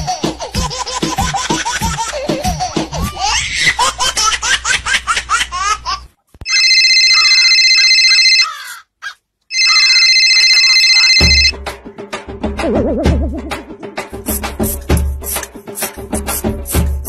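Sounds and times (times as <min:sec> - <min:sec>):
loud electronic ringing tone: 0:06.5 - 0:08.5, 0:09.5 - 0:11.5.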